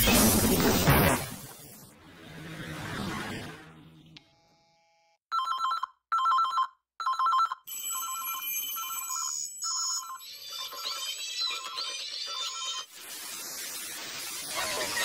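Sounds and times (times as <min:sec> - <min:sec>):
telephone two-tone trill ringing: 0:05.3 - 0:11.0.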